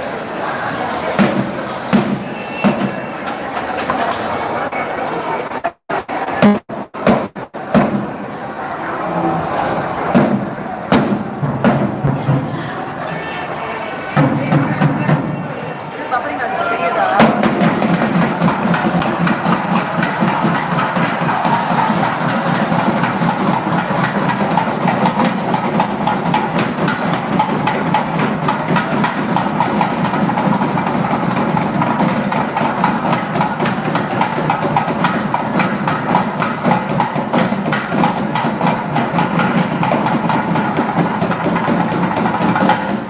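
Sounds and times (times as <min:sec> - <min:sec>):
fast loud drumming: 0:05.5 - 0:08.3, 0:10.1 - 0:12.9, 0:14.2 - 0:15.4, 0:17.0 - 0:43.0.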